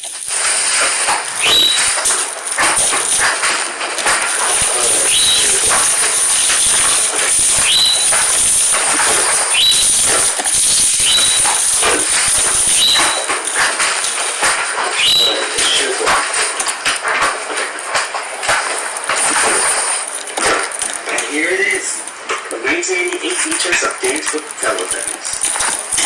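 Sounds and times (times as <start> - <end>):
bubble wrap crinkling: 0.0 - 26.0
scissors cutting plastic: 0.0 - 26.0
high animal call: 1.4 - 2.1, 7.5 - 8.3, 8.9 - 11.7, 12.6 - 13.3, 14.9 - 15.9.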